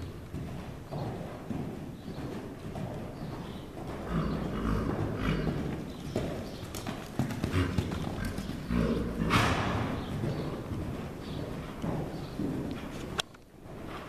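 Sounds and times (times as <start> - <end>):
horse hooves thudding on sand: 0.0 - 14.0.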